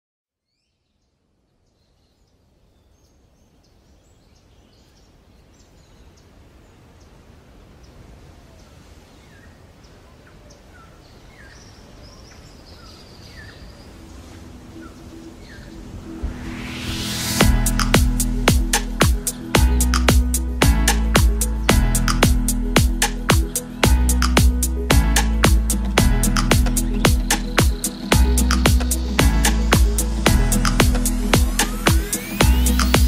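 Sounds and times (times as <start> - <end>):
outdoor background noise: 0.4 - 33.0
birds chirping: 8.6 - 33.0.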